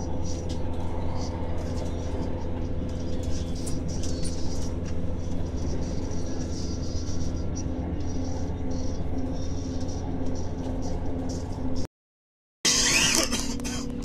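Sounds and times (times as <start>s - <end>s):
constant hum: 0.0s - 11.9s, 12.7s - 14.0s
train rumble inside carriage: 0.0s - 11.9s, 12.7s - 14.0s.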